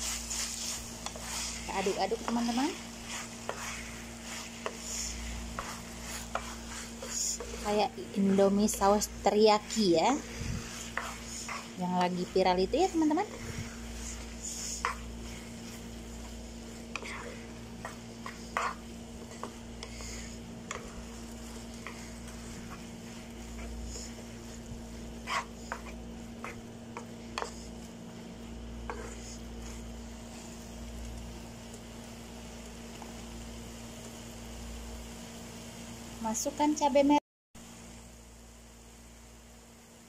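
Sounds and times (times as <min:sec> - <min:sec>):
spatula scraping frying pan: 0:00.0 - 0:30.7
low sizzle: 0:00.0 - 0:40.0.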